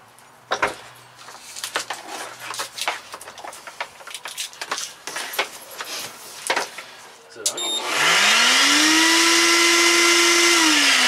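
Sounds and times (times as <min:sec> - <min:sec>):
hose and cord clicking and rustling: 0:01.2 - 0:07.6.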